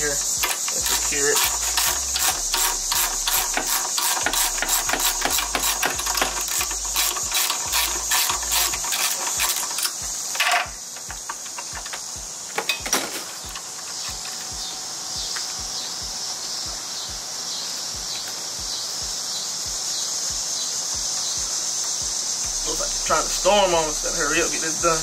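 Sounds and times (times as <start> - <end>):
ratchet wrench clicking: 0.0 - 14.7
steady high hiss: 0.0 - 25.0.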